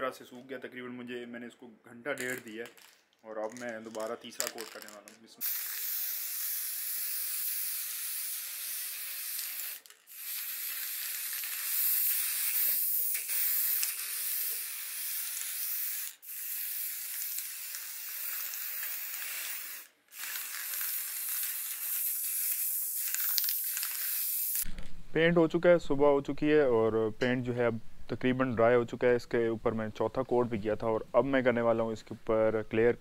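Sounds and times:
spray paint can hissing: 0:05.4 - 0:24.7.

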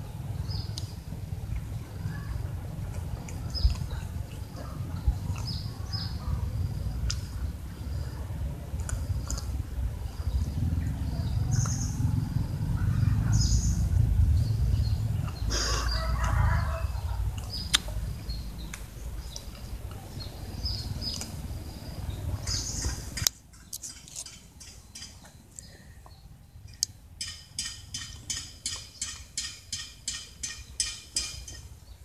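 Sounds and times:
low rumble: 0:00.0 - 0:23.2.

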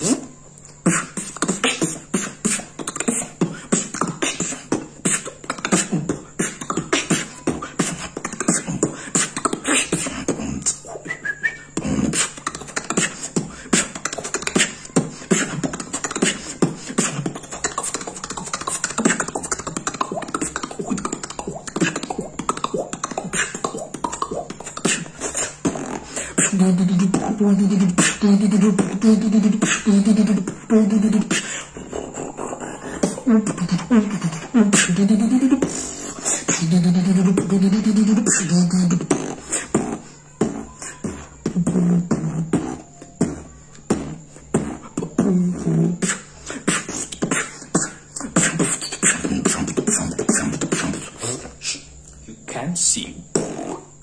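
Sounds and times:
beatboxing clicks and pops: 0:00.0 - 0:52.4, 0:53.1 - 0:54.0
hummed bass line: 0:13.8 - 0:32.3.

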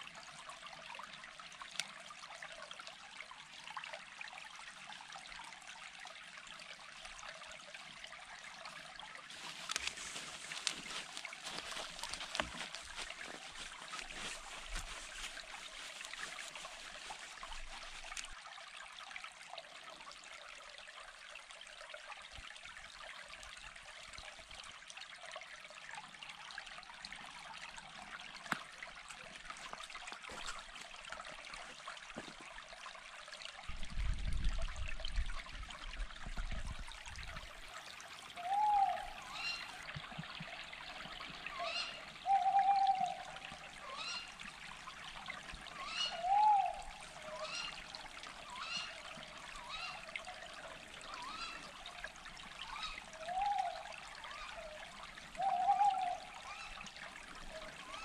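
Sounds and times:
hands rustling moss: 0:09.3 - 0:18.4
stream rushing: 0:09.3 - 0:18.4.

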